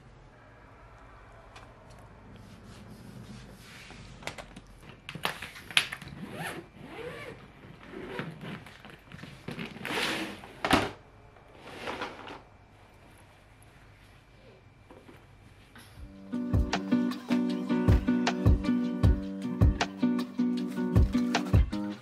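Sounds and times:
suitcase zipper rasping: 0:06.0 - 0:10.5.

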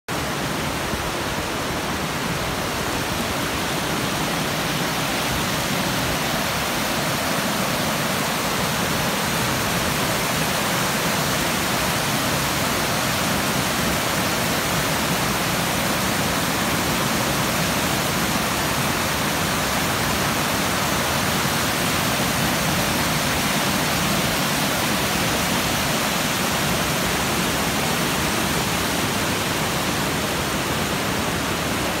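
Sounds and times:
river rushing over rocks: 0:00.1 - 0:32.0.

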